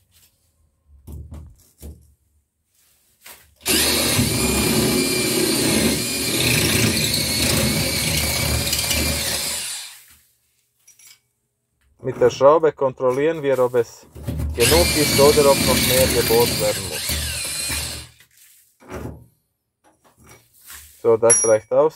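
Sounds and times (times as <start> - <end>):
drill boring into ceramic tile: 3.6 - 10.0, 14.6 - 18.2.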